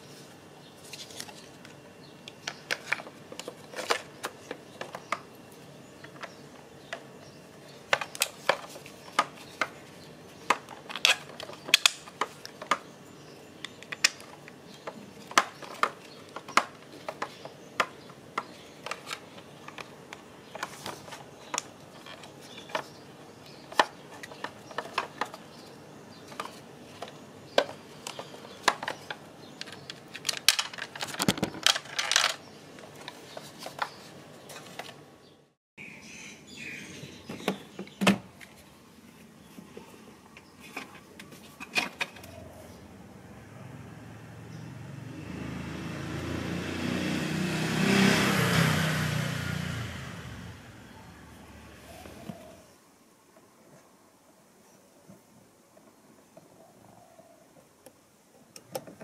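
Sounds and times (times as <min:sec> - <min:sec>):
hard parts clicking and clattering: 0:26.2 - 0:35.0.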